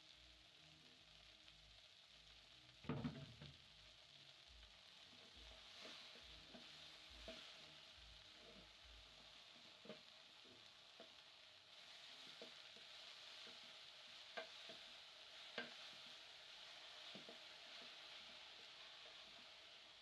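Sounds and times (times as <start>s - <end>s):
faint sizzle of cooking: 0.0s - 20.0s
spoon stirring greens in a pot: 5.2s - 20.0s.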